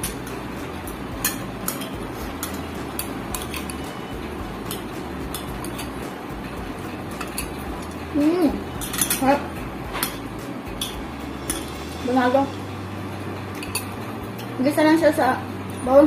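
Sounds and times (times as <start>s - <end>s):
low background hum: 0.0s - 16.0s
cutlery clinking on plates: 1.2s - 4.0s, 8.8s - 11.8s.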